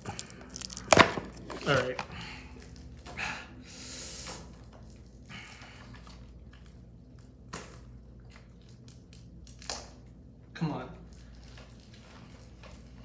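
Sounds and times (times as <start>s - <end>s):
plastic wrap crinkling: 0.0s - 2.0s.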